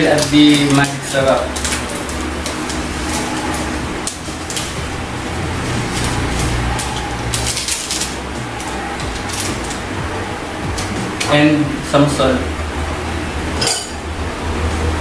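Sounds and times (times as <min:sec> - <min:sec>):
seasoning sachet crackling: 0:00.0 - 0:10.0
steady low hum: 0:00.0 - 0:15.0.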